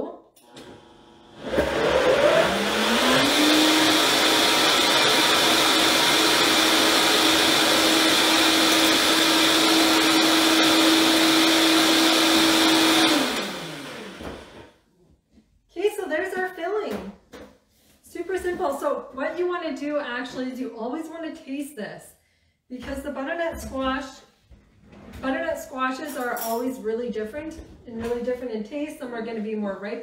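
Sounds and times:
blender motor whirring: 0.4 - 14.7.

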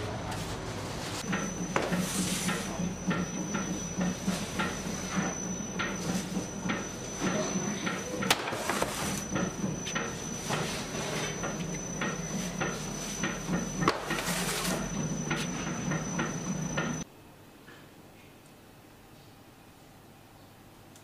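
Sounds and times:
machine hum with high whine: 0.0 - 21.0.

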